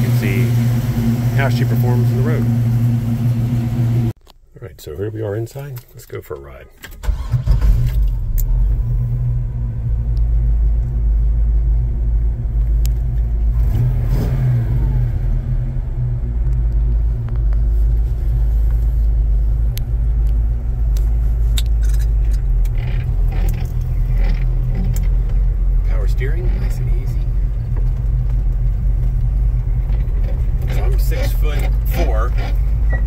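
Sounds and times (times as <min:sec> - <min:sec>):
truck engine rumbling: 0:00.0 - 0:33.0
small clicks and rattles: 0:21.6 - 0:25.5.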